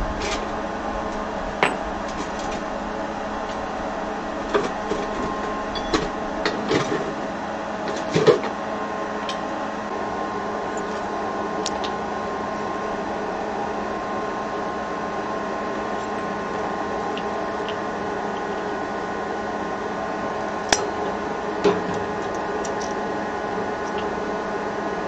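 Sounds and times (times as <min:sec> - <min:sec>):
air blower whirring: 0:00.0 - 0:25.0
constant hum: 0:00.0 - 0:25.0
metal tool clinking on furnace: 0:05.7 - 0:06.1.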